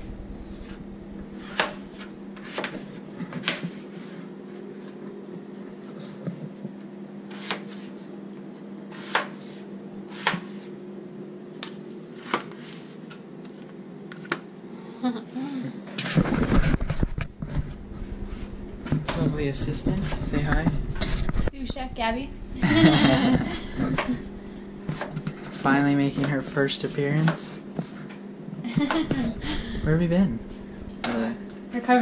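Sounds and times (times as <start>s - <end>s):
low hum: 0.0s - 3.3s, 14.6s - 32.0s.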